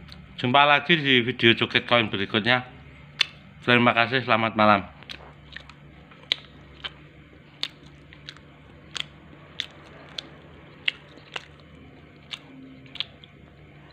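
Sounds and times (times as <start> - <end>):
faint low hum: 0.0 - 13.9
chewing clicks and smacks: 3.2 - 3.4, 5.0 - 13.9.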